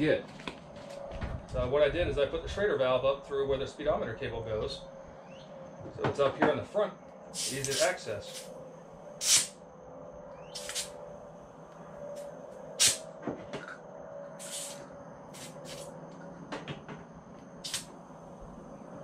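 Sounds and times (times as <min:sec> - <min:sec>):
faint steady hum: 0:00.0 - 0:19.0
compressed air hissing: 0:07.3 - 0:08.5, 0:09.2 - 0:09.6, 0:10.6 - 0:11.0, 0:12.8 - 0:13.0, 0:14.4 - 0:15.9, 0:17.6 - 0:17.9.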